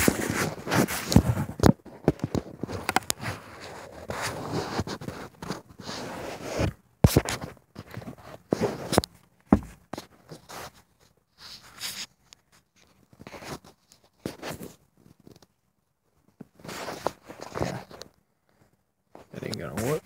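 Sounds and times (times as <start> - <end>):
handling noises: 0.0 - 5.8, 6.5 - 10.8, 16.2 - 20.0
hand rubbing phone microphone: 0.0 - 9.0, 19.2 - 20.0.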